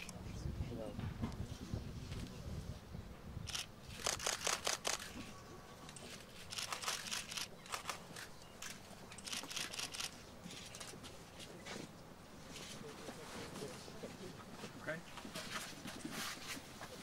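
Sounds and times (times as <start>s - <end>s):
camera shutter clicks: 3.5s - 5.2s, 6.1s - 10.9s.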